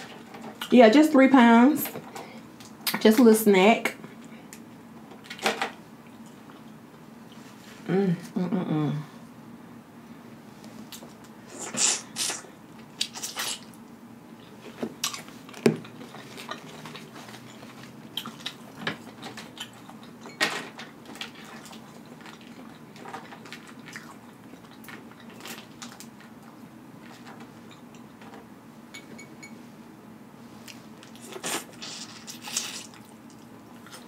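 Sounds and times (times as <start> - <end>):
wet mouth sucking and smacking: 31.1 - 33.1.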